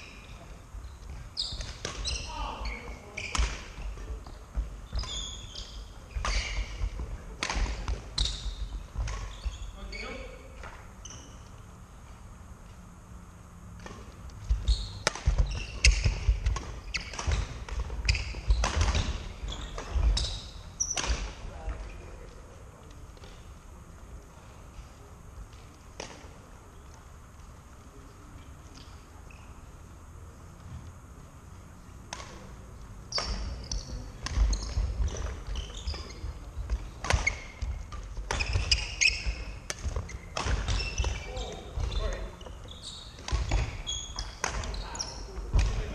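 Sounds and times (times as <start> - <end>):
shoe squeaks: 0.0 - 3.9, 4.8 - 7.0, 8.1 - 11.6, 14.4 - 21.1, 28.8 - 29.7, 33.1 - 45.4
racket hitting shuttlecock: 7.4 - 8.1, 13.8 - 20.0, 34.2 - 35.3, 36.7 - 41.9.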